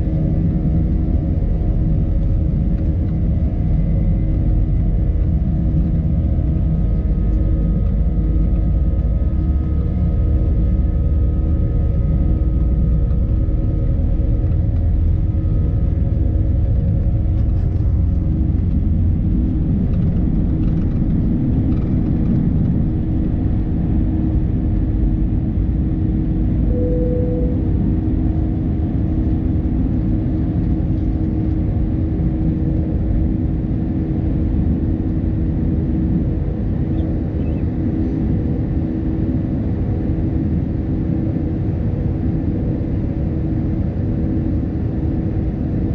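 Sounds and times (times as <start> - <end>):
jet engines droning: 0.0 - 45.9
wheels rumbling on runway: 0.0 - 45.9
brief steady tone: 26.6 - 27.8.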